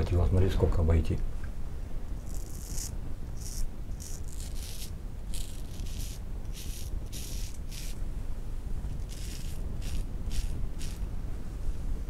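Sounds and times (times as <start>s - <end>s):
razor scraping stubble: 2.2s - 8.0s, 8.9s - 11.0s.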